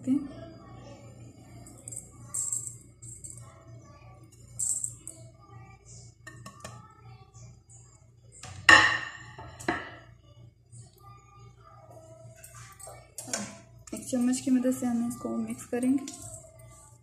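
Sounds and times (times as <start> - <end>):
plate knocking on steel bowl: 8.6 - 10.0.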